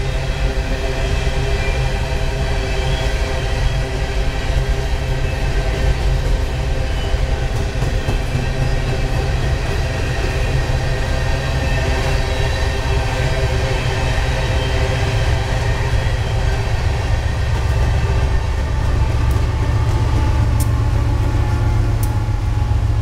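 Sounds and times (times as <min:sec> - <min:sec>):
train wheels rumbling on rail: 0:00.0 - 0:23.0
constant tonal hum: 0:08.5 - 0:23.0.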